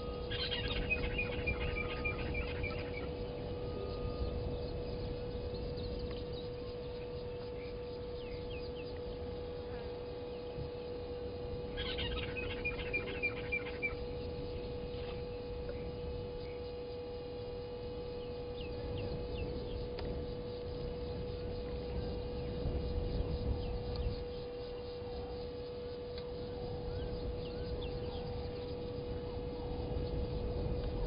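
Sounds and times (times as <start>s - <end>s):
birds calling: 0.0s - 9.2s, 11.6s - 16.7s
steady electrical hum: 0.0s - 31.0s.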